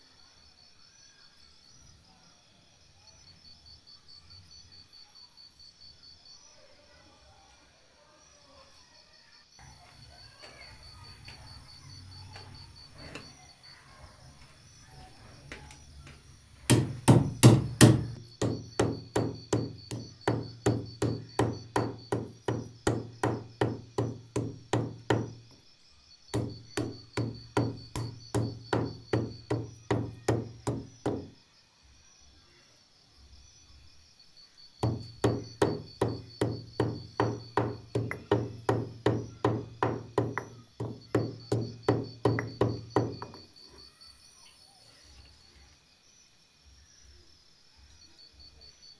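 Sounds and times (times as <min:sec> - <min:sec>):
stone pestle pounding in mortar: 0:16.7 - 0:25.4, 0:26.4 - 0:31.3, 0:34.8 - 0:43.4.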